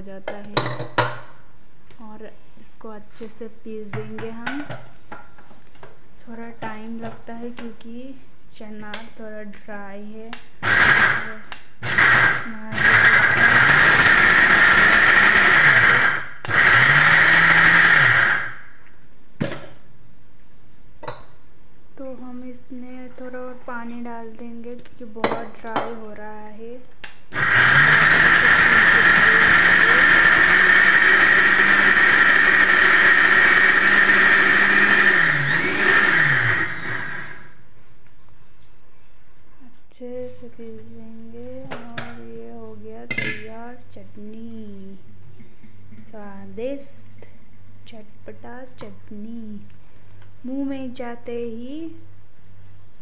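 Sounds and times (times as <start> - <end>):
electric mixer grinder running: 10.6 - 18.7, 27.3 - 37.6.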